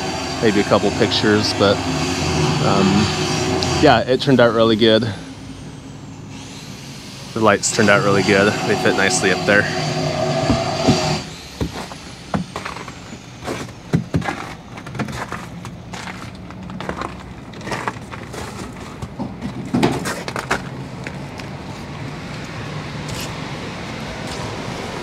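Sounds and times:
footsteps on wooden dock: 10.4 - 20.7.

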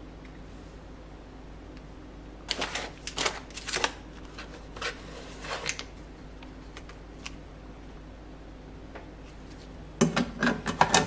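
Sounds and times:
plastic packaging crinkling: 2.5 - 6.0.

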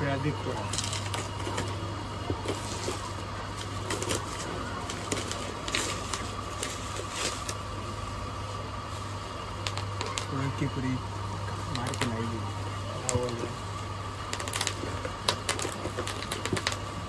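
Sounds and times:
steady low hum: 0.0 - 17.0
packaging crinkling: 14.2 - 17.0.

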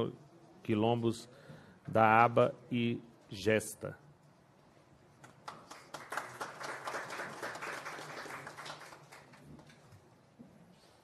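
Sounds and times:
audience applauding: 5.4 - 9.9.

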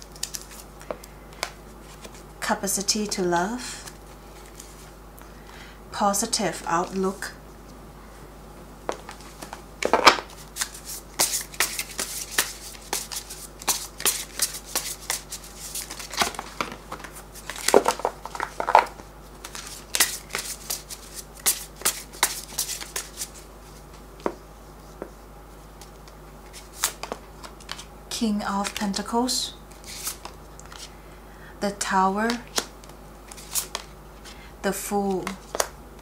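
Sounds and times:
cards being shuffled: 0.0 - 2.2, 8.9 - 23.4, 25.8 - 27.9, 28.6 - 29.0, 29.7 - 30.9, 32.3 - 34.4, 35.2 - 35.7.

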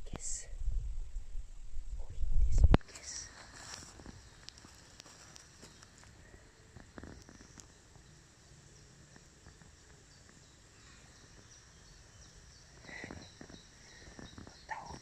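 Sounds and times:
faint steady hiss: 0.0 - 15.0
cat rustling dry leaves: 2.9 - 6.2
distant bird chirps: 2.9 - 15.0.

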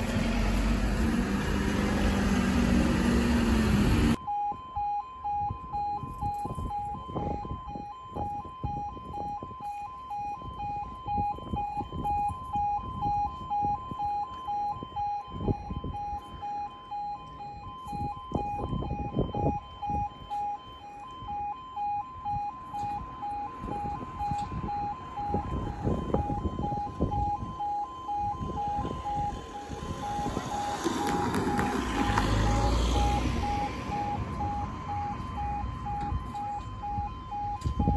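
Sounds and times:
low rumbles: 0.0 - 4.2
two-tone crossing alarm: 0.0 - 37.9.

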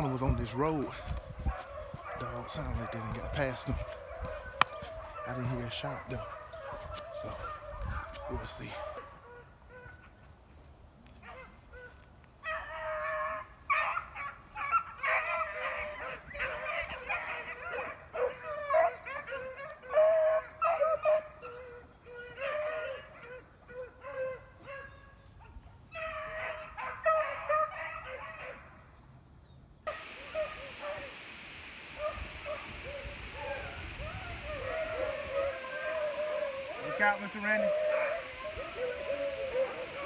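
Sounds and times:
hounds baying and barking: 0.0 - 10.2, 11.2 - 28.7, 29.9 - 40.0
steady hiss: 29.9 - 40.0.

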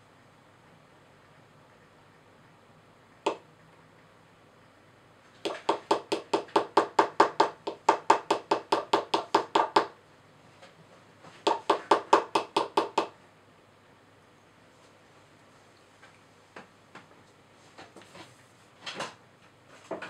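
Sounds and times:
hammer tapping on a chisel: 3.2 - 3.4, 5.4 - 10.0, 11.4 - 13.2.

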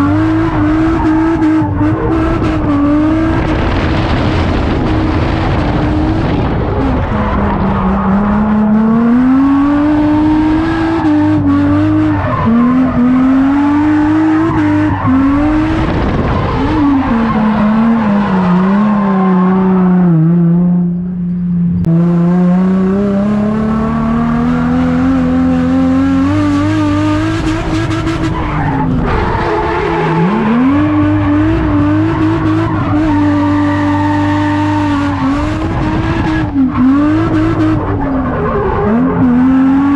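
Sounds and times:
car engine revving hard: 0.0 - 20.8, 21.8 - 39.9
tyres squealing and skidding: 9.9 - 20.1, 27.5 - 39.9.

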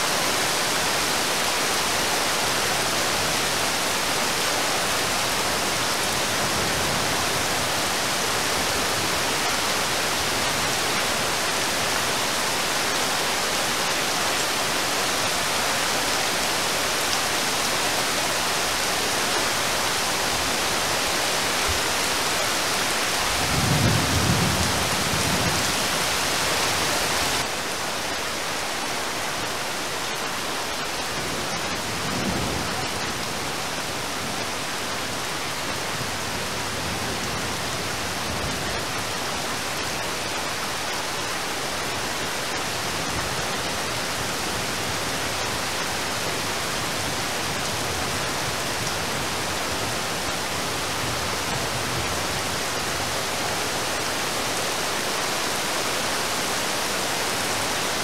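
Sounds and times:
heavy rain falling on water: 0.0 - 58.0
low rumble of thunder: 23.3 - 25.8.

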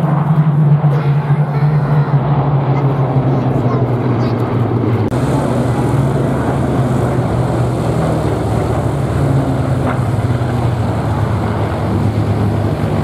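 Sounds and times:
propeller aircraft droning overhead: 0.0 - 13.0.

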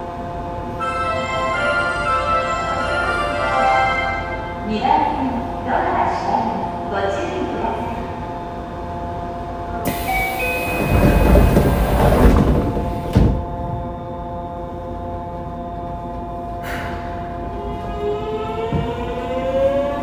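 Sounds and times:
subway car electrical whine: 0.0 - 20.0
air hiss: 9.8 - 10.9.

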